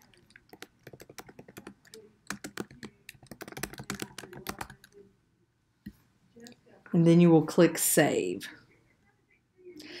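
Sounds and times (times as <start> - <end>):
computer keyboard typing: 0.0 - 5.0.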